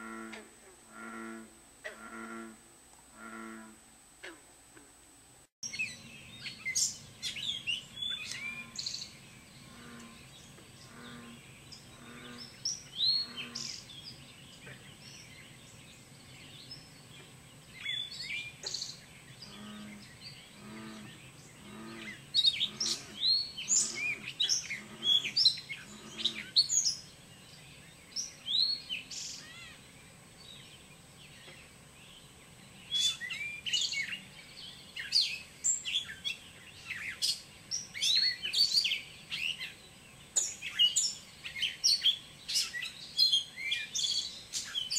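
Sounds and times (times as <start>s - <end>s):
birds chirping and whistling: 5.7s - 9.1s, 21.7s - 27.1s.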